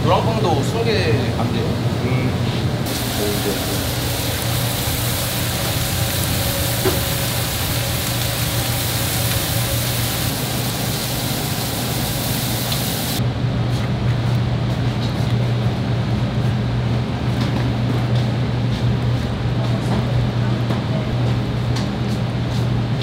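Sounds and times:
food sizzling: 0:02.8 - 0:13.2.

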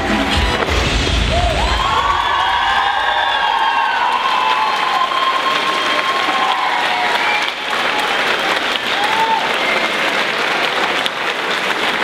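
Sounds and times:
crowd applauding: 0:00.0 - 0:12.0
crowd cheering: 0:00.0 - 0:12.0.

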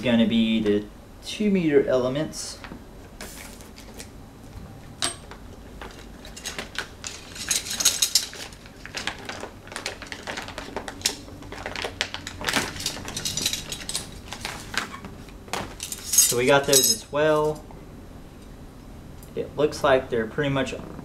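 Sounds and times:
plastic packaging crinkling: 0:05.8 - 0:15.0
metal rods clinking together: 0:06.2 - 0:08.6, 0:12.4 - 0:14.9, 0:15.8 - 0:17.6.

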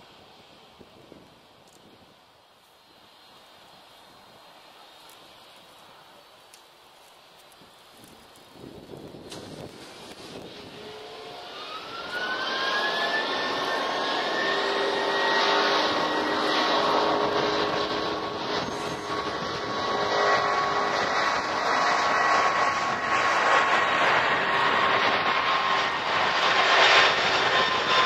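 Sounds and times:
jet engines spooling up: 0:08.0 - 0:28.0.

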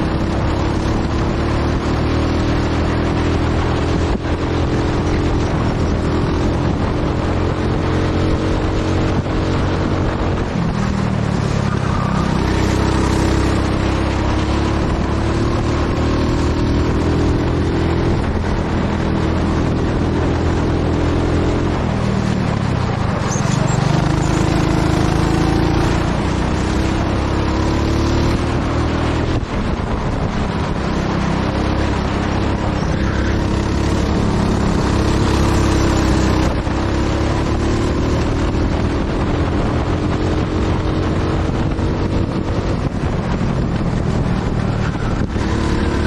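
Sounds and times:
go-kart engine revving: 0:00.0 - 0:46.0.

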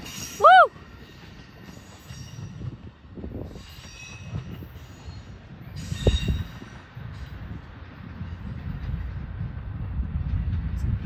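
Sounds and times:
train wheels rumbling on rail: 0:00.0 - 0:11.0
train knocks: 0:00.9 - 0:11.0
high wheel squeals: 0:03.4 - 0:06.8.

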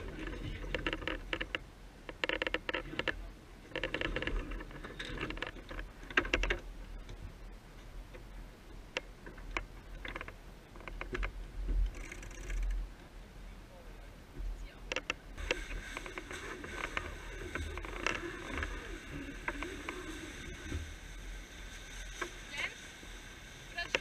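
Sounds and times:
low wind rumble: 0:00.0 - 0:24.0
winch ratcheting clicks: 0:08.9 - 0:12.8.

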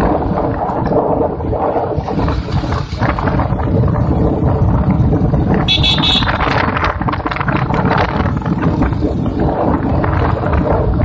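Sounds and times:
vehicle rumbling: 0:00.0 - 0:11.0
wind buffeting microphone: 0:00.0 - 0:11.0
high horn toot: 0:05.7 - 0:06.5.

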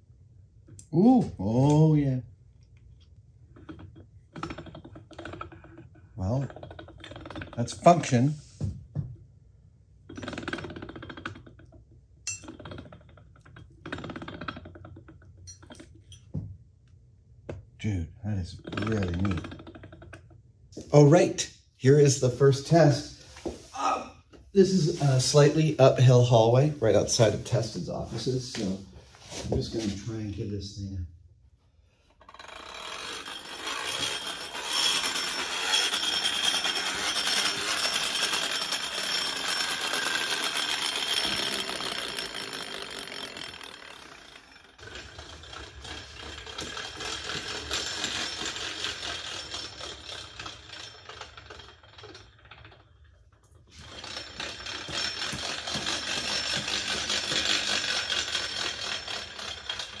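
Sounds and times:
flywheel whirring with gear rattle: 0:03.6 - 0:08.2, 0:10.1 - 0:16.2, 0:18.6 - 0:20.4, 0:32.1 - 1:00.0.

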